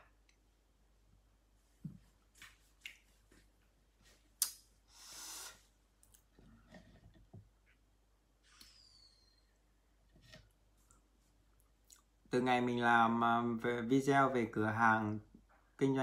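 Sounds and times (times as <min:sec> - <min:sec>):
soft breath-like rush: 0:04.8 - 0:05.8.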